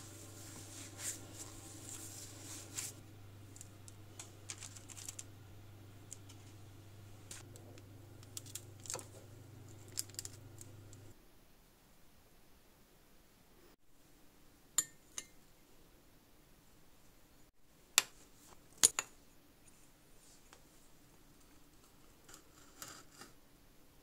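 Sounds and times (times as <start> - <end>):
hands working cookie dough: 0.0 - 11.2
low steady hum: 0.0 - 11.2.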